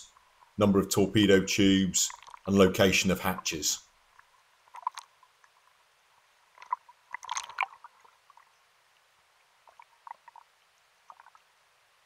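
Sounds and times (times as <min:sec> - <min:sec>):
underwater clicks: 0:02.1 - 0:02.6, 0:04.1 - 0:05.6, 0:06.5 - 0:08.4
water gurgling underwater: 0:06.5 - 0:08.6.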